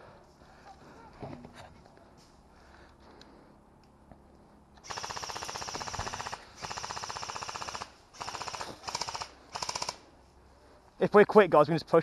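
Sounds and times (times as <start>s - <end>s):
airsoft rifle full-auto bursts: 4.8s - 10.0s.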